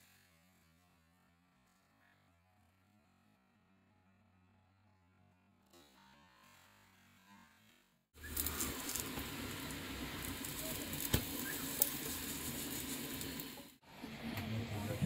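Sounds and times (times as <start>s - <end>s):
flatbread sizzling on a griddle: 8.2s - 13.8s.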